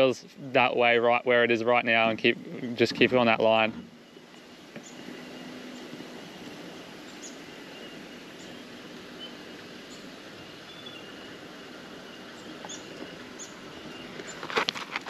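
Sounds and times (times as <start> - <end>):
car engine running low: 0.0 - 15.0
faint high bird chirps: 7.0 - 11.3, 12.0 - 14.4.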